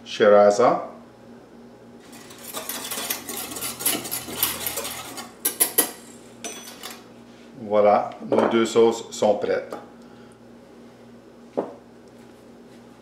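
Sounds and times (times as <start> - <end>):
spoon stirring in metal bowl: 2.0 - 7.0.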